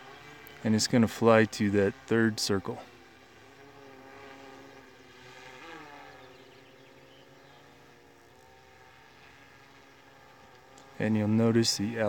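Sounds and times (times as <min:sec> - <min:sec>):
drone propellers humming: 0:00.0 - 0:12.0.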